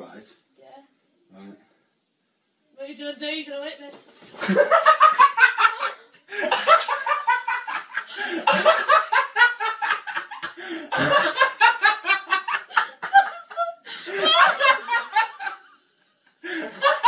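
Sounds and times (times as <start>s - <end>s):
woman laughing: 4.4s - 15.8s.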